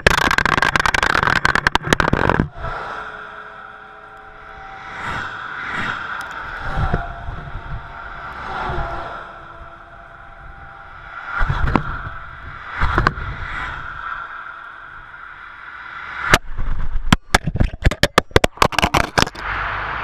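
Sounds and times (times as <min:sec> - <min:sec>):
plastic camera clattering on road: 0:00.0 - 0:02.5, 0:17.1 - 0:19.4
vehicles passing close: 0:00.0 - 0:16.9, 0:19.1 - 0:20.0
traffic rushing past: 0:02.5 - 0:16.4, 0:19.4 - 0:20.0.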